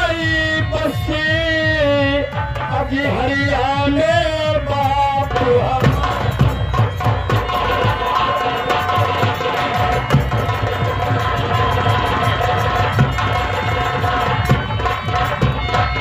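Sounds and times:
man singing: 0:00.0 - 0:09.8
fast hand drum strokes: 0:00.0 - 0:16.0
harmonium: 0:00.0 - 0:16.0.

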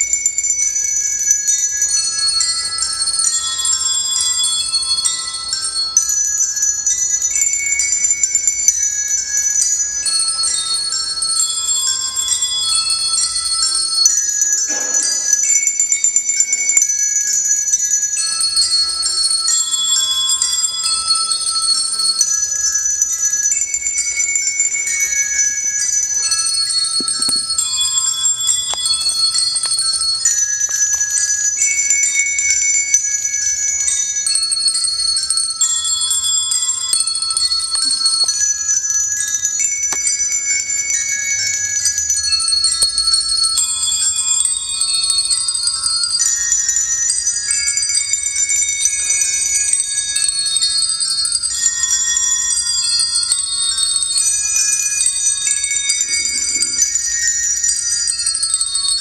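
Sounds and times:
handbells ringing: 0:00.0 - 0:59.0.

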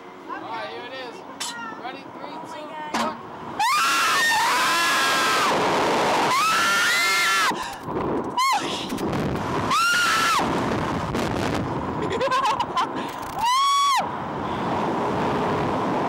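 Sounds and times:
people screaming: 0:03.6 - 0:05.6, 0:06.2 - 0:07.6, 0:08.4 - 0:08.7, 0:09.7 - 0:10.4, 0:13.4 - 0:14.1
rush of air: 0:05.0 - 0:12.1.

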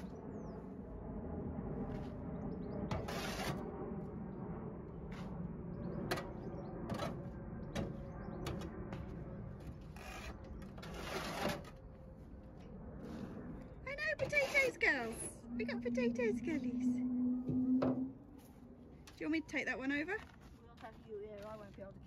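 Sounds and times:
metal scoop scraping compost: 0:10.8 - 0:11.8.

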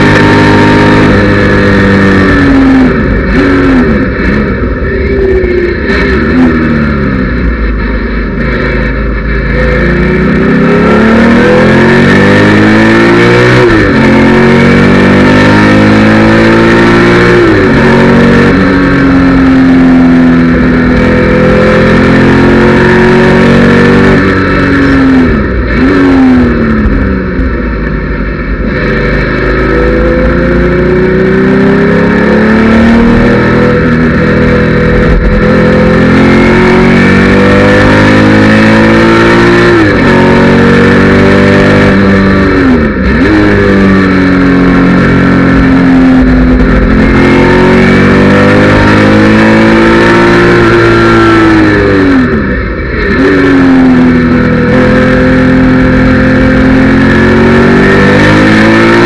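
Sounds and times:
car engine at full throttle: 0:00.0 - 0:59.0.

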